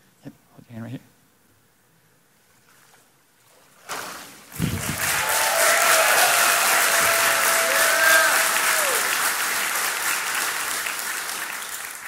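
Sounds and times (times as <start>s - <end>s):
water splash: 3.7s - 5.0s
crowd applause: 4.6s - 12.0s
people whooping: 4.7s - 9.8s.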